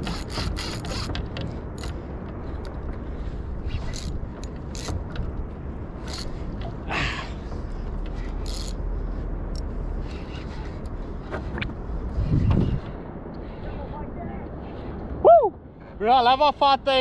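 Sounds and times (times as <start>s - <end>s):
fishing reel clicking and ratcheting: 0.0s - 1.2s, 6.0s - 6.4s, 8.3s - 8.8s
wind rumble on microphone: 0.0s - 16.0s.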